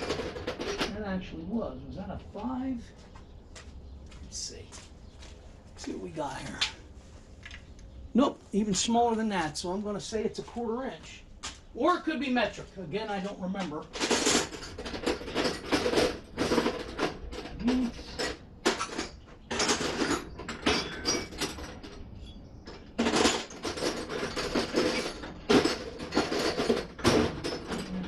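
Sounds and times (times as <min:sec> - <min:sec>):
metal tools clattering in toolbox: 0:00.0 - 0:01.0, 0:13.9 - 0:28.0.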